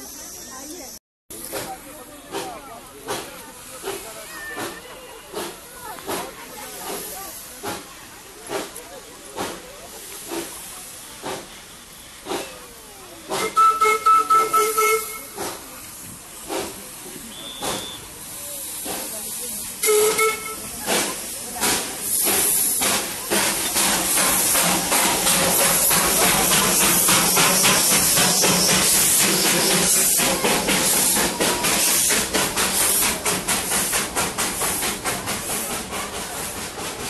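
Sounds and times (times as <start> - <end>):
hiss of escaping steam: 0.0 - 37.0
steam locomotive chuffing: 0.0 - 37.0
steam whistle blasts: 13.4 - 15.4, 17.3 - 18.1, 19.8 - 20.7.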